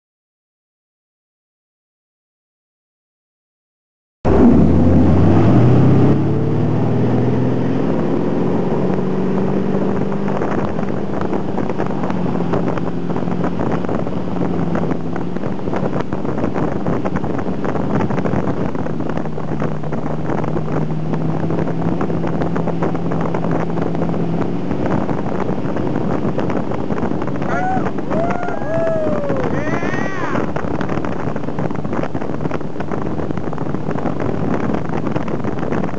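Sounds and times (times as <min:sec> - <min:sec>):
boat engine rising in pitch: 0:04.3 - 0:35.9
wind on microphone: 0:04.3 - 0:35.9.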